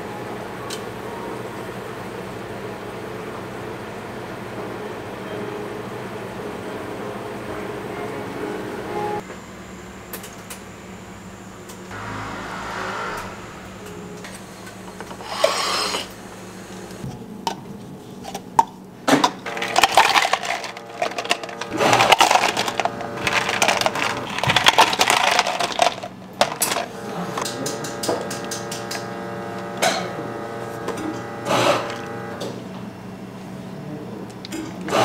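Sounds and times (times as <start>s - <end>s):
steady hum: 0.0s - 34.5s
ice cubes clinking into plastic cups: 19.2s - 26.9s.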